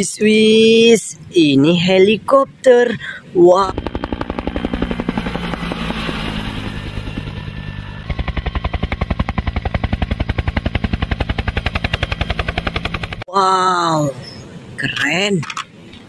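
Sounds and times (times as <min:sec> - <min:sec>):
helicopter low hum: 0:03.0 - 0:13.3
helicopter rotor beating: 0:03.4 - 0:13.3.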